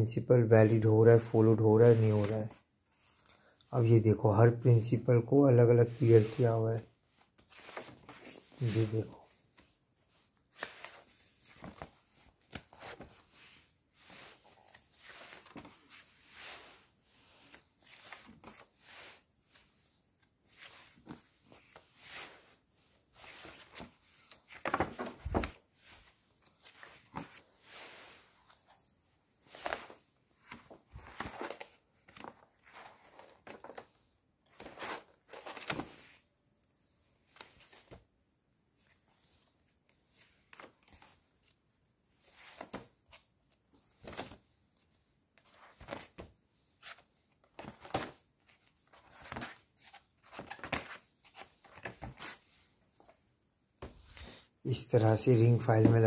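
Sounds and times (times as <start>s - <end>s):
paper pages rustling and turning: 0.6s - 3.2s, 5.8s - 36.3s, 37.2s - 38.1s, 38.8s - 41.6s, 42.2s - 53.2s.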